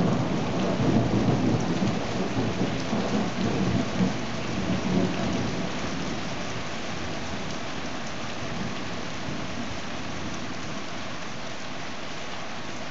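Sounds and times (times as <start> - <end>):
thunder rumble: 0.0 - 5.8
heavy rain pouring: 0.0 - 12.9.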